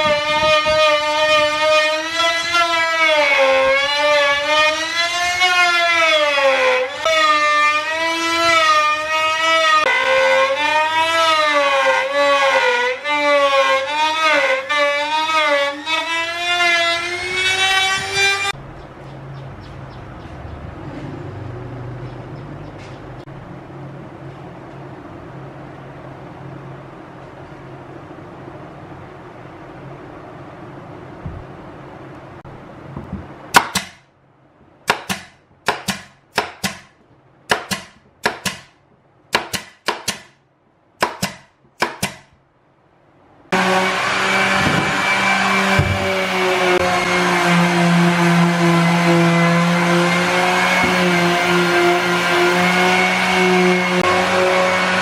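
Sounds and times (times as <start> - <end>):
power sander: 0.0 - 18.6, 43.5 - 55.0
nail gun firing: 33.5 - 34.1, 34.9 - 40.4, 41.0 - 42.3
electric router whining: 43.5 - 55.0.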